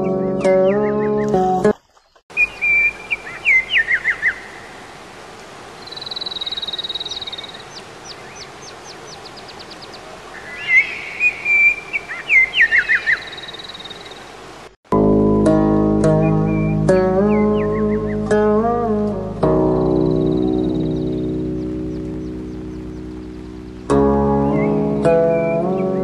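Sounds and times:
guitar music: 0.0 - 1.7, 14.9 - 26.0
songbirds singing: 0.0 - 4.8, 5.7 - 14.6, 16.0 - 26.0
stream water rushing: 1.2 - 14.8, 16.4 - 26.0.

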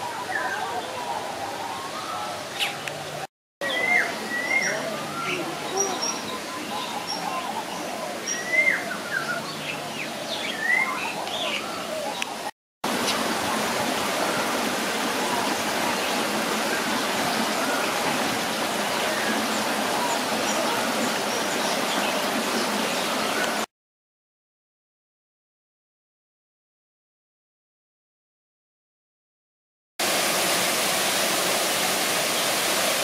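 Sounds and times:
birds chirping: 0.0 - 23.7
running water rushing: 0.0 - 23.7, 30.0 - 33.0.

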